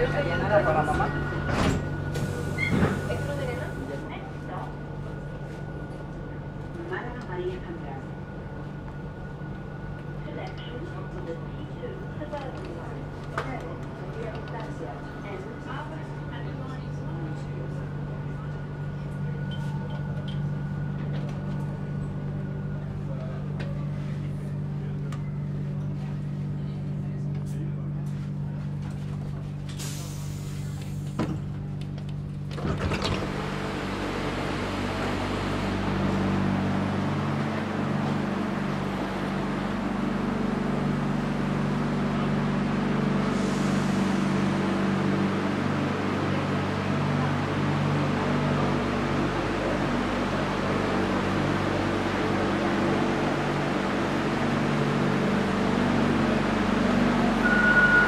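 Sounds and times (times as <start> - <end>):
train electrical hum: 0.0 - 58.0
steady high tone: 57.3 - 58.0.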